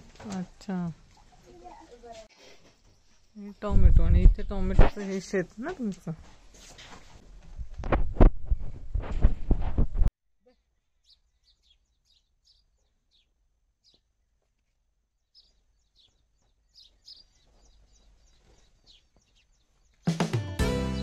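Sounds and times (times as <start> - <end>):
small birds chirping: 0.0 - 6.6, 10.4 - 20.3.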